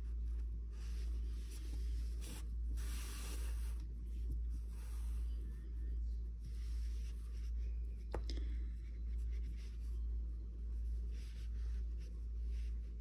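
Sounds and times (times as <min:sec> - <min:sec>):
pulsing low hum: 0:03.8 - 0:13.0.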